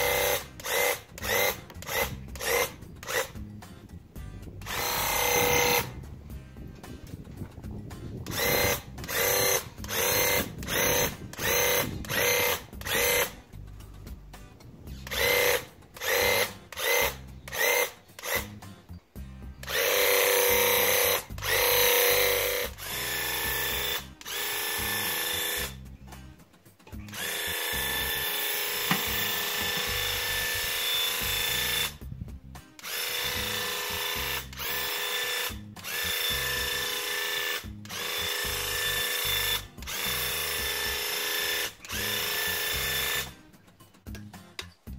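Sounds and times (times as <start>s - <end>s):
paint sprayer pump whining: 0.0s - 3.4s, 4.6s - 6.0s, 8.2s - 13.5s, 14.9s - 18.6s, 19.6s - 25.8s, 26.9s - 32.0s, 32.8s - 43.4s.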